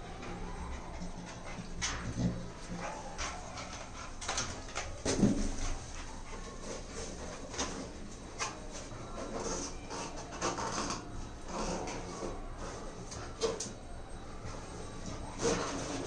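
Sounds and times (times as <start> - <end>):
dog whimpering: 2.7 - 4.0.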